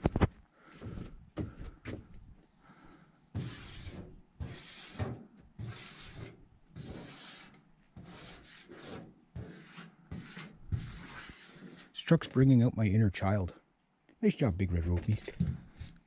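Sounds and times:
fingertip rubbing on metal: 3.4 - 11.9.

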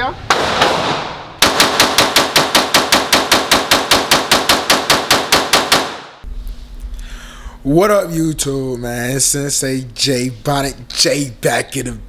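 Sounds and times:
pistol shots with echo: 0.3 - 6.2.

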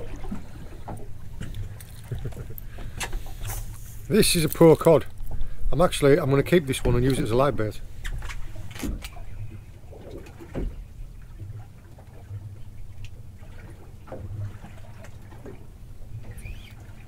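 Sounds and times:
boat hum: 0.0 - 17.0.

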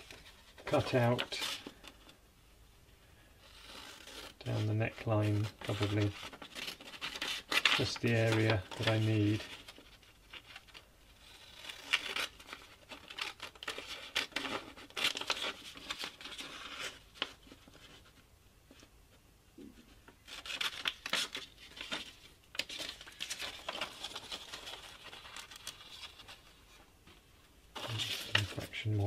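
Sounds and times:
paper rustling: 3.4 - 18.9, 19.6 - 29.0.

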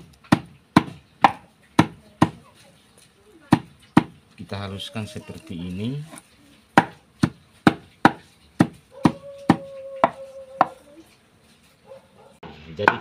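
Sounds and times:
stone pounding on wooden plank: 0.0 - 2.4, 3.5 - 4.2, 6.7 - 10.8, 12.8 - 13.0.

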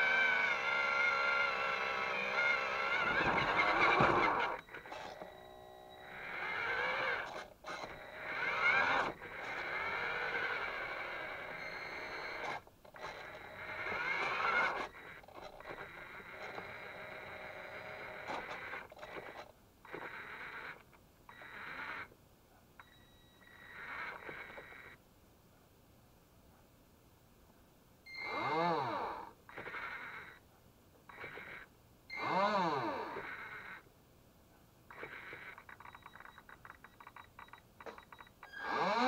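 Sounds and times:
toy electric motor whining: 0.0 - 22.2, 22.9 - 25.0, 28.1 - 30.4, 31.1 - 33.9, 34.9 - 39.0.

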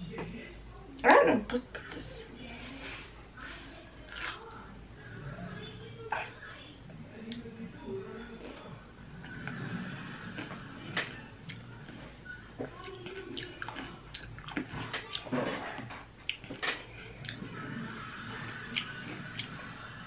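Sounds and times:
faint room noise: 0.0 - 20.0
person chewing: 4.1 - 4.6, 8.2 - 17.6, 18.6 - 19.6.

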